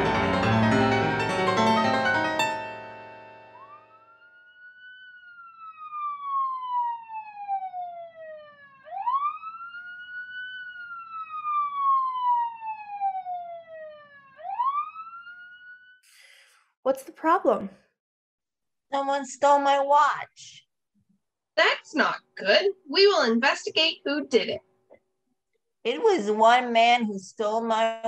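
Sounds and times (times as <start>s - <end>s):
police siren wailing: 0.0s - 16.0s.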